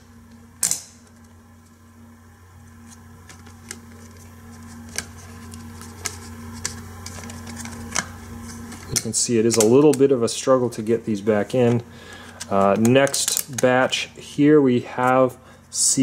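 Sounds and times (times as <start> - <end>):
steady low hum: 0.0 - 16.0
plastic clicks of discs: 11.6 - 13.9.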